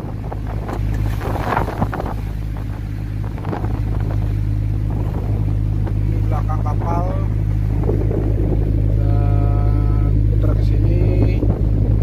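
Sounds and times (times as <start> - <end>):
boat engine droning: 0.0 - 12.0
rough sea rushing: 0.0 - 12.0
wind noise on microphone: 0.0 - 12.0.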